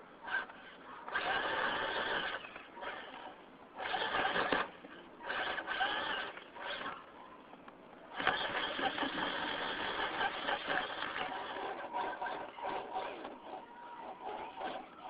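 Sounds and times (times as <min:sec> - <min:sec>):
toy truck electric motor whining: 0:00.2 - 0:07.1, 0:08.1 - 0:15.0.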